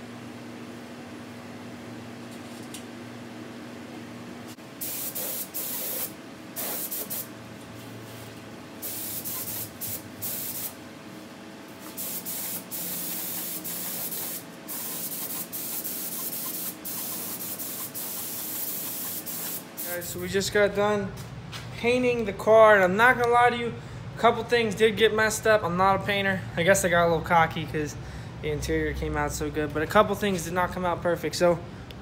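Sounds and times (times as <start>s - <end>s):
spray gun hissing: 4.8s - 7.3s, 8.8s - 10.8s, 11.8s - 20.1s.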